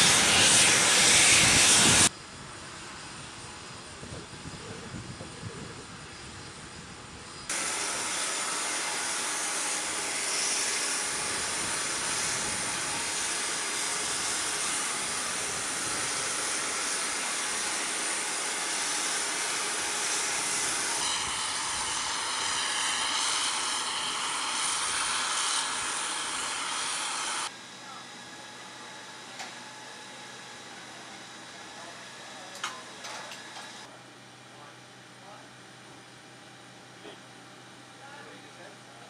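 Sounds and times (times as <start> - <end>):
jet turbine hiss: 0.0 - 27.6.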